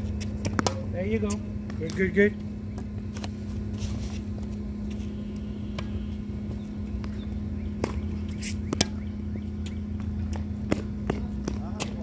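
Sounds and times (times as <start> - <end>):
steady low hum: 0.0 - 12.0
tennis ball strikes: 0.4 - 0.9, 7.0 - 12.0.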